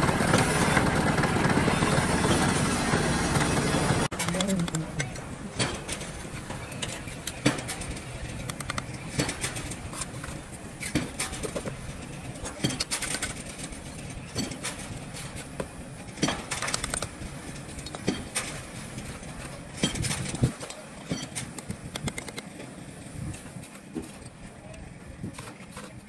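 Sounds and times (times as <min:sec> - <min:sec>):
trowel clinking on bricks: 0:14.2 - 0:15.5.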